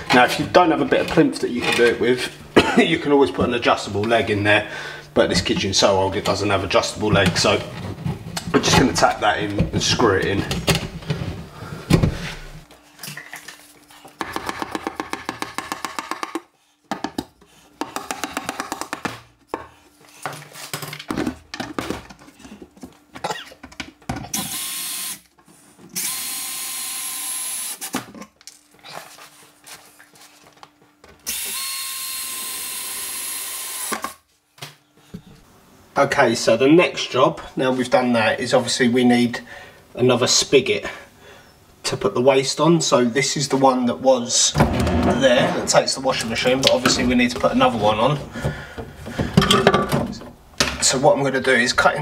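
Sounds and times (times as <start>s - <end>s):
drill driving screws: 24.4s - 25.2s, 26.0s - 27.9s, 31.3s - 34.2s.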